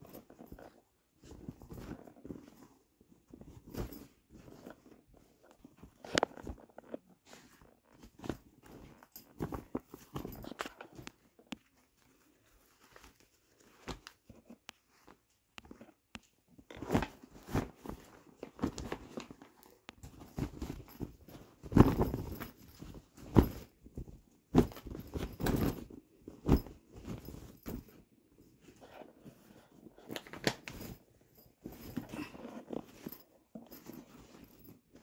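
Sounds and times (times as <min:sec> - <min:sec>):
fabric bags rustling: 0:16.7 - 0:28.0.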